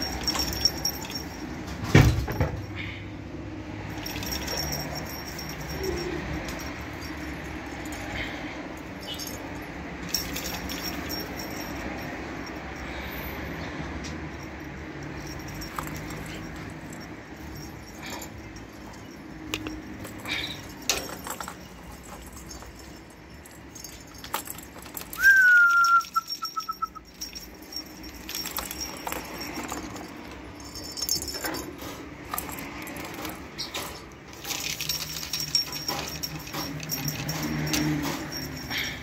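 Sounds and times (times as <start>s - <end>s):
loud thin high call: 25.2s - 27.1s.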